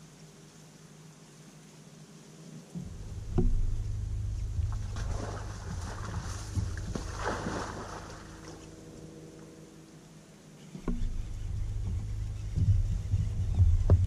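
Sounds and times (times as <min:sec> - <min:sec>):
low rumble through boat hull: 0:02.7 - 0:09.8, 0:10.7 - 0:14.0
knock on boat deck: 0:02.8 - 0:03.8, 0:10.8 - 0:14.0.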